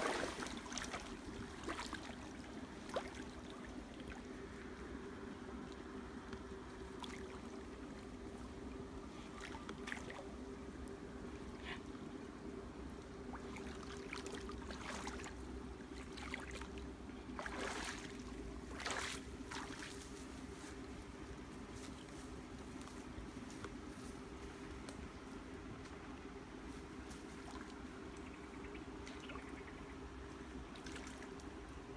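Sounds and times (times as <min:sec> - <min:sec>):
person wading through water: 0:00.0 - 0:08.4, 0:09.0 - 0:10.4, 0:13.2 - 0:20.2, 0:30.6 - 0:31.9.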